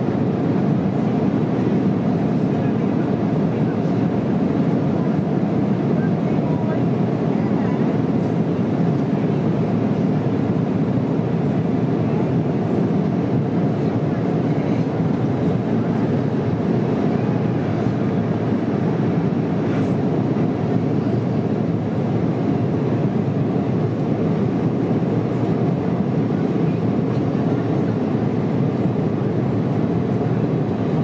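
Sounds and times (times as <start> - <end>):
airliner cabin engine roar: 0.0 - 31.0.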